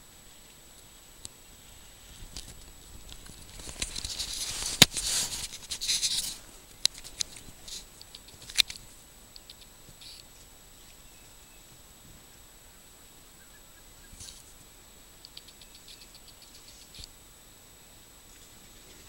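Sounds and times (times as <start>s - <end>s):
rustling near microphone: 0.0s - 12.3s
sharp click: 15.2s - 17.1s.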